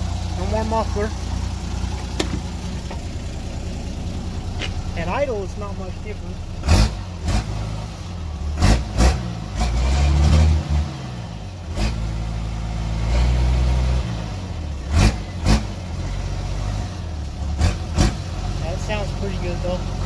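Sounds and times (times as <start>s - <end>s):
diesel engine idling and revving: 0.0s - 20.0s
sharp thumps: 1.9s - 3.1s.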